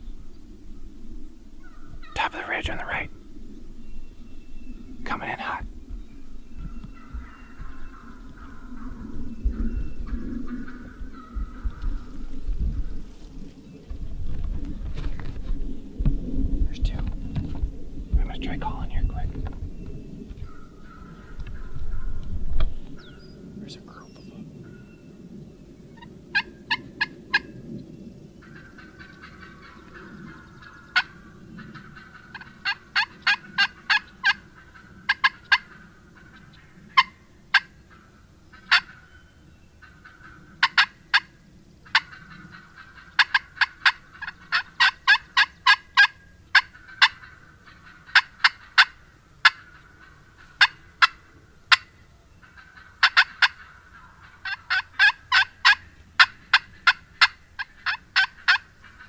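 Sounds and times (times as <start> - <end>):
turkey hen clucking rapidly: 28.4 - 39.1, 39.8 - 59.0.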